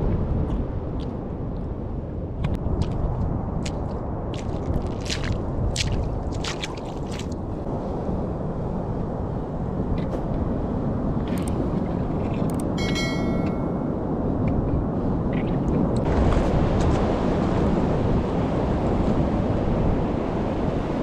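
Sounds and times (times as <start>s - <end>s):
wind on microphone: 0.0s - 21.0s
splashing footsteps in water: 2.7s - 7.4s
ocean surf rumbling: 7.4s - 21.0s.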